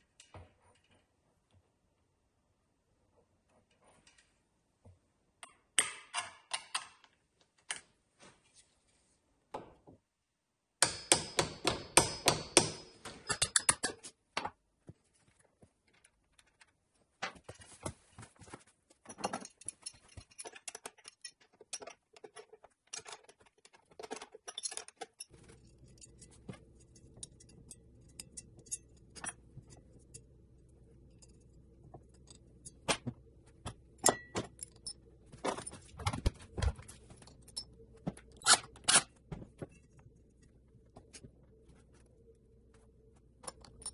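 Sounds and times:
tools clinking on a workbench: 0:34.0 - 0:35.8.

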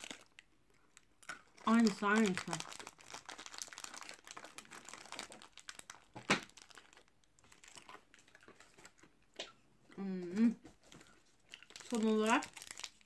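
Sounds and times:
plastic wrappers crinkling: 0:00.0 - 0:09.2, 0:10.8 - 0:13.0.

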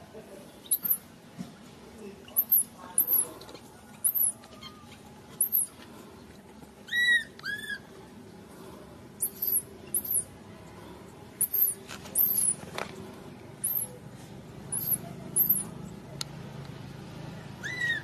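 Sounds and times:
infant monkey squealing: 0:00.6 - 0:01.0, 0:02.3 - 0:03.3, 0:04.0 - 0:05.7, 0:06.9 - 0:07.9, 0:09.2 - 0:10.2, 0:11.4 - 0:12.6, 0:13.6 - 0:13.9, 0:14.7 - 0:15.7, 0:17.6 - 0:18.0
high short chirps: 0:00.7 - 0:01.0, 0:05.4 - 0:05.7, 0:09.2 - 0:10.3, 0:11.4 - 0:12.6, 0:13.6 - 0:14.0, 0:14.7 - 0:15.7.

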